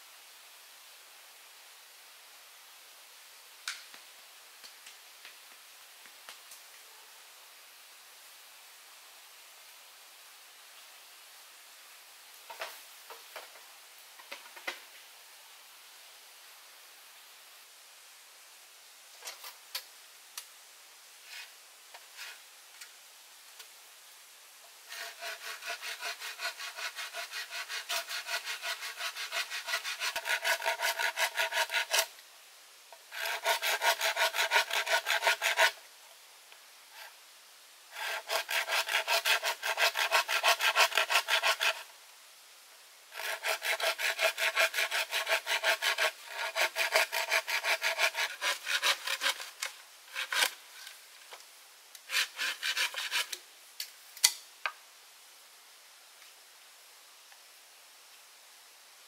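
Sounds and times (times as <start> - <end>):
hand saw cutting wood: 24.9 - 32.1, 33.0 - 35.8, 37.9 - 41.9, 43.1 - 50.6, 52.0 - 53.4.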